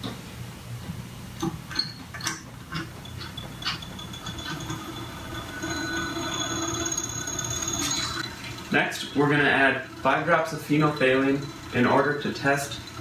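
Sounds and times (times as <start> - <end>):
whine of spinning stirrer: 2.7 - 13.0.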